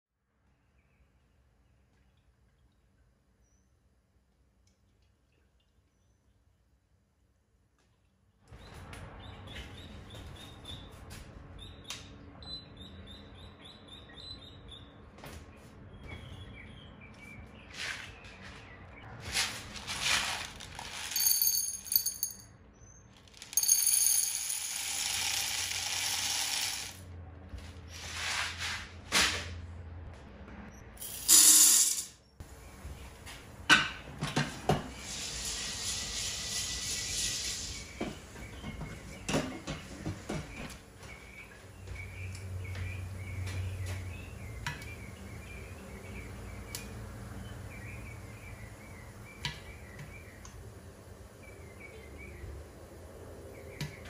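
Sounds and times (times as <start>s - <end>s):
popcorn kernels rattling in metal pot: 20.0s - 22.0s, 23.3s - 27.0s.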